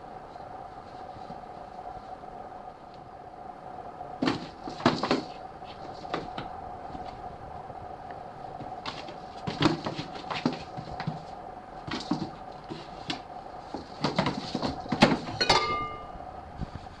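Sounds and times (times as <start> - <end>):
faint steady hum: 0.0 - 17.0
box bumping: 4.2 - 6.5, 8.8 - 16.0
cat scratching cardboard box: 4.2 - 7.2, 8.6 - 15.3.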